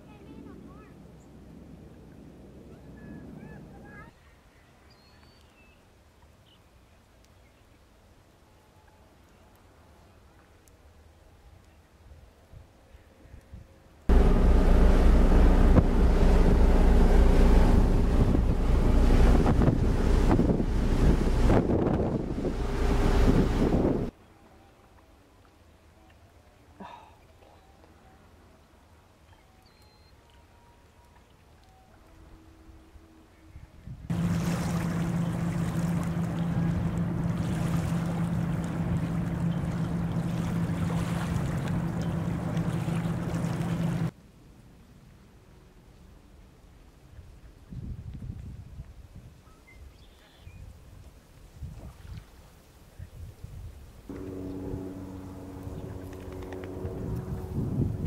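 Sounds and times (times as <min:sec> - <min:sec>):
low engine hum: 0:14.1 - 0:24.1, 0:34.1 - 0:44.1, 0:54.1 - 0:58.0
surf washing: 0:14.1 - 0:24.1, 0:34.1 - 0:44.1, 0:54.1 - 0:58.0
wind buffeting microphone: 0:14.1 - 0:24.1, 0:47.7 - 0:49.4, 0:53.0 - 0:58.0.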